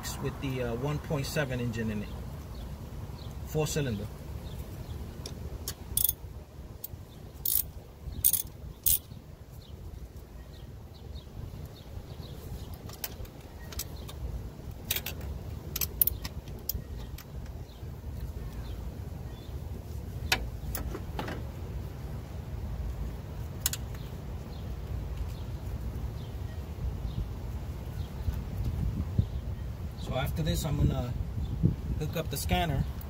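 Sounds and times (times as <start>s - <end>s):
metallic clinks of ratchet tools: 6.0s - 6.2s, 7.4s - 9.0s.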